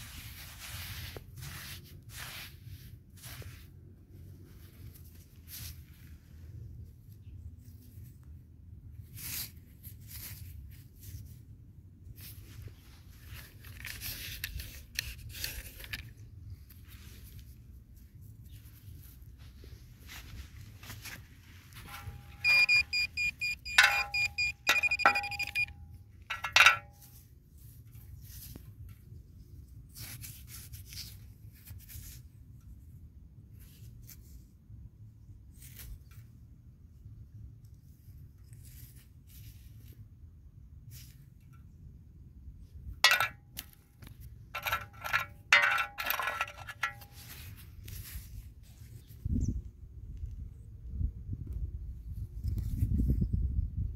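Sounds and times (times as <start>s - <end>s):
scraping of sandy soil: 0.0s - 6.8s, 44.6s - 49.1s.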